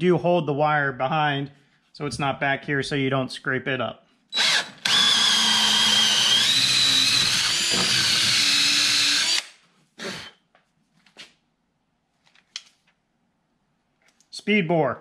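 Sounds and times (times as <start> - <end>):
drill boring through wood: 4.3 - 10.4.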